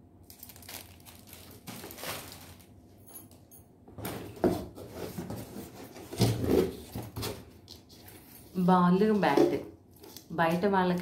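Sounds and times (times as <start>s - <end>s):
cardboard and toys rustling: 0.3s - 3.4s, 4.0s - 11.0s.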